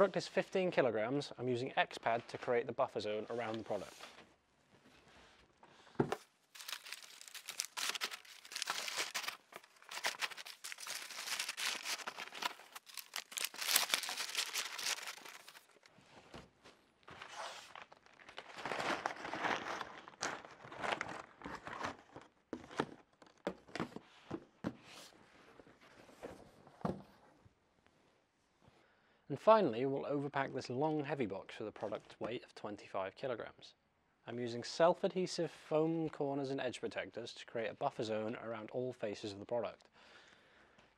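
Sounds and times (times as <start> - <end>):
paper crinkling and rustling: 6.5 - 15.9, 17.1 - 22.2.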